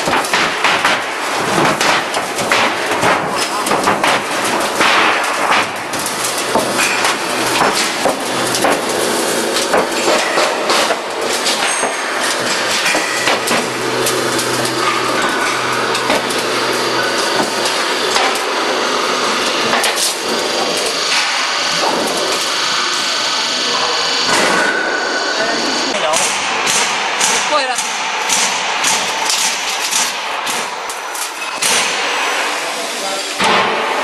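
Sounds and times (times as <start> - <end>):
machine knocks and clatter: 0.0 - 22.5
roll forming machine hum: 0.0 - 34.0.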